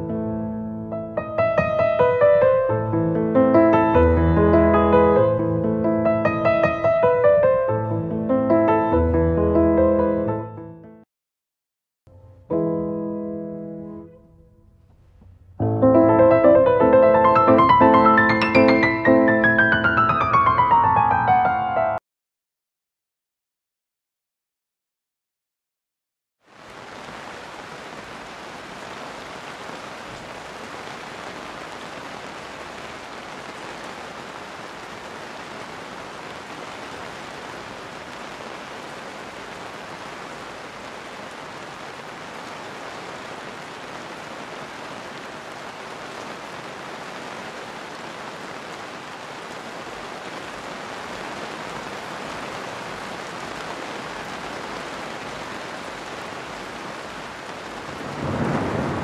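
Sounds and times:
steady rain falling: 0:00.9 - 0:08.8, 0:14.9 - 0:21.1, 0:26.4 - 0:59.0.

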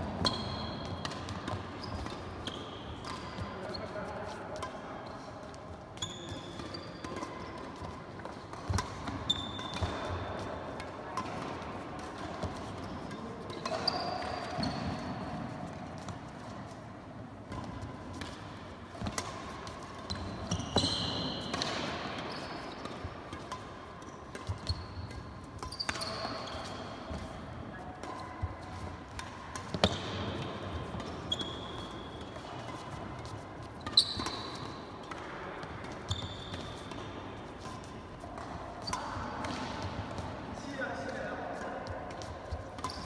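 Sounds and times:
racket striking shuttlecock: 0:00.0 - 0:03.5, 0:06.6 - 0:16.5, 0:17.4 - 0:40.4
shoes squeaking on court floor: 0:00.0 - 0:43.0.

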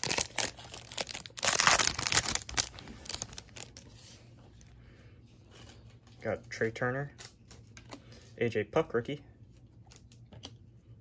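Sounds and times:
foil wrapper crinkling and tearing: 0:00.0 - 0:03.9.

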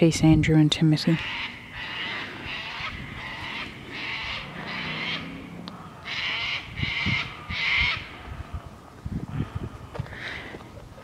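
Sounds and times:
crow cawing: 0:01.2 - 0:08.8.

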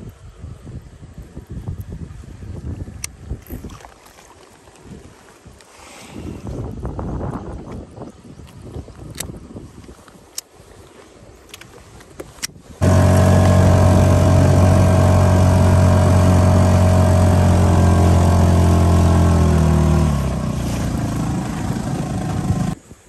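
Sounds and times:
outboard motor running: 0:12.8 - 0:22.8.

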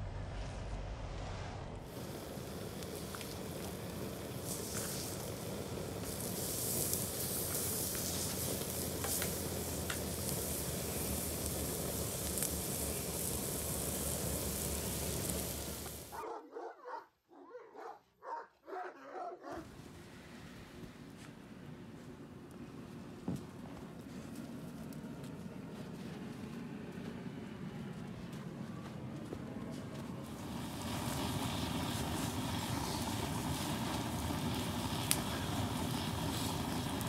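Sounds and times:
crackles and pops: 0:01.8 - 0:16.2, 0:30.2 - 0:37.0
meat sizzling on hot plate: 0:01.9 - 0:16.1, 0:30.4 - 0:37.0.

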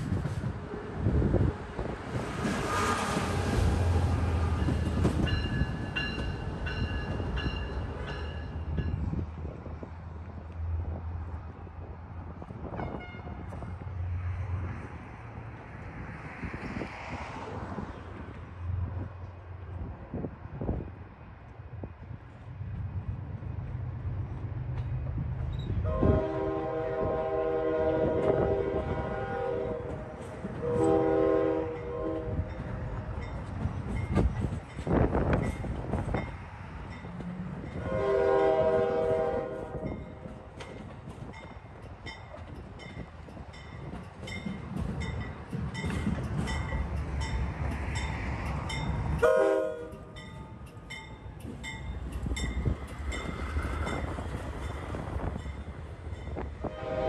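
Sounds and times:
diesel train rumbling: 0:00.0 - 0:57.0
train horn blasts: 0:12.7 - 0:13.6, 0:25.8 - 0:32.6, 0:37.8 - 0:40.3, 0:49.2 - 0:50.3, 0:56.6 - 0:57.0.

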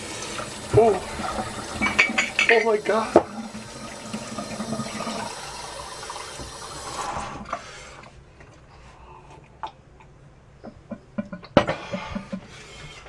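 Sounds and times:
water running into a jug: 0:00.0 - 0:07.8.

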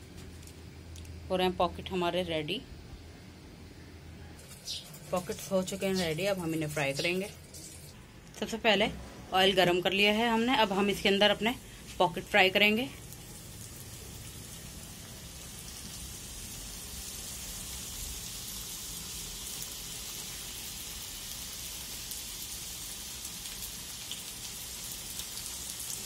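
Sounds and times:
food sizzling in hot oil: 0:04.4 - 0:08.0, 0:10.0 - 0:26.0.

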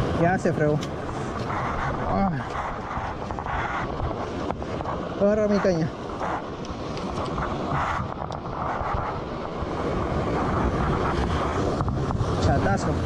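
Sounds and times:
surf washing against rocks: 0:00.0 - 0:13.0
wind buffeting microphone: 0:00.0 - 0:13.0.

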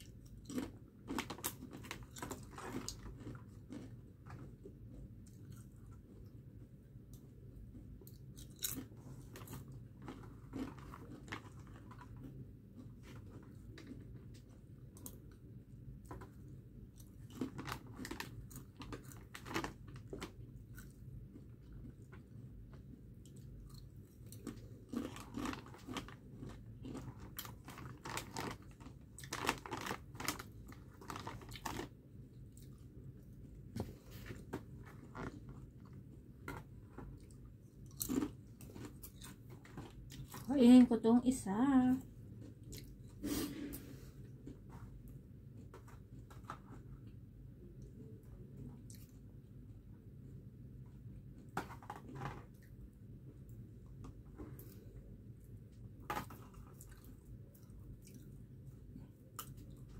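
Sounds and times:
crisp chips crunching: 0:00.0 - 0:05.8, 0:08.2 - 0:14.1, 0:17.0 - 0:22.0, 0:23.2 - 0:32.8, 0:34.3 - 0:40.5
low steady hum: 0:00.0 - 0:59.9.

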